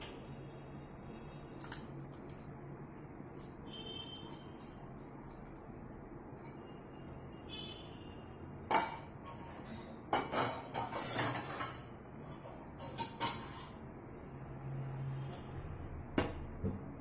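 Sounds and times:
metal kitchenware clinking: 8.7 - 13.8.

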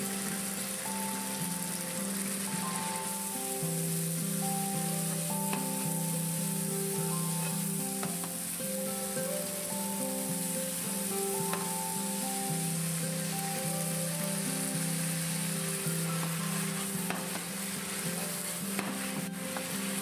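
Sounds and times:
stir-fry sizzling in a frying pan: 0.0 - 20.0
spatula clicking against a pan: 11.5 - 11.7.

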